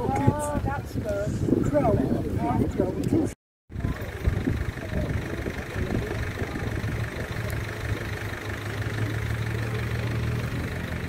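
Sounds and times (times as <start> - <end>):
vehicle engine idling: 3.7 - 11.0.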